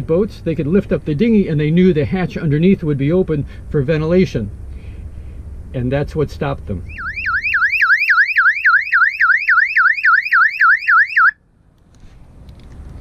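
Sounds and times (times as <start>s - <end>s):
electronic alarm siren warbling: 6.9s - 11.4s.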